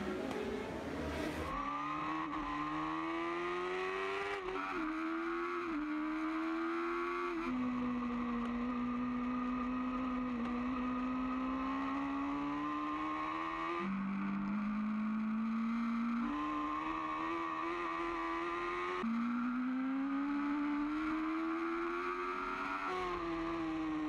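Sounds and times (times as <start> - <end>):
motorcycle engine at high revs: 0.0 - 24.0.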